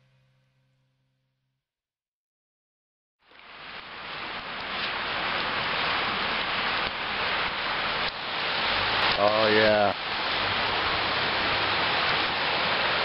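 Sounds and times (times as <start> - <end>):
campfire hissing and crackling: 3.2 - 13.0.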